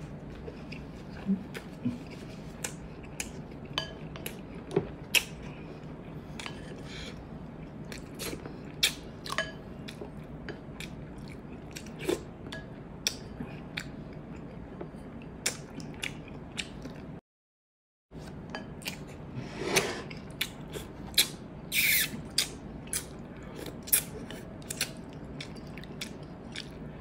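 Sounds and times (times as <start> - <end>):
person chewing: 0.3 - 12.3, 20.0 - 26.9.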